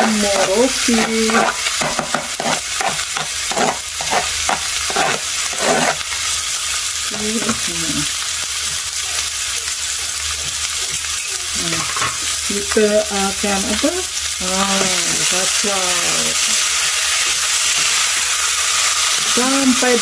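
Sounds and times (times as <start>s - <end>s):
metal spoon scraping cutting board: 0.0s - 6.2s
fish sizzling in oil: 0.0s - 20.0s.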